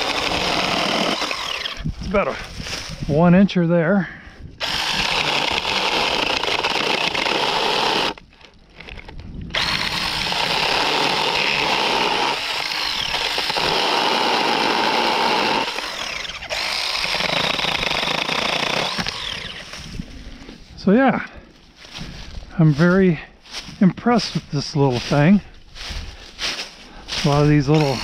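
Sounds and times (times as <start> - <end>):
mini chainsaw cutting tree limbs: 0.0 - 1.9, 4.6 - 8.2, 9.5 - 19.9, 27.2 - 28.0.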